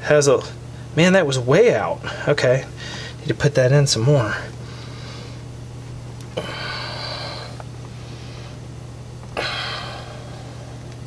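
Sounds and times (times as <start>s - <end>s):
steady low hum: 0.0s - 11.0s
sharp exhalations of effort: 6.4s - 7.6s, 9.4s - 10.6s.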